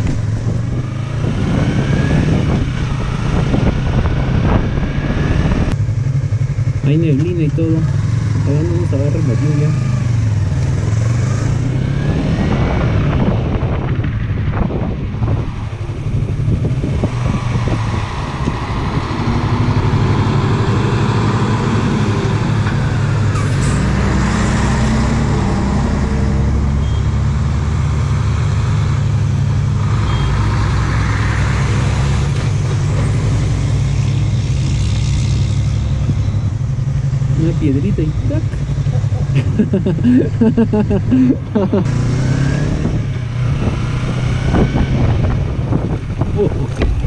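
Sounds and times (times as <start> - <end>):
motorcycle engine running: 2.2 - 11.9, 34.0 - 47.0
diesel dump trucks passing: 15.5 - 46.2.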